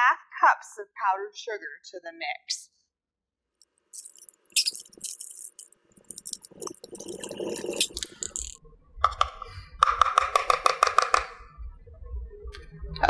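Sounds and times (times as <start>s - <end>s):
measuring cup and utensils tapping: 6.2s - 11.4s.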